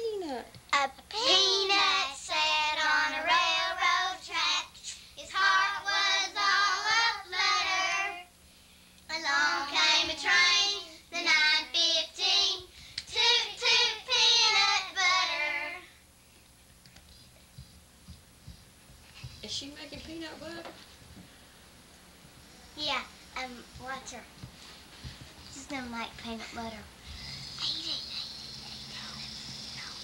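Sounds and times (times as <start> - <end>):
child singing: 0.8 - 8.3, 9.1 - 15.8.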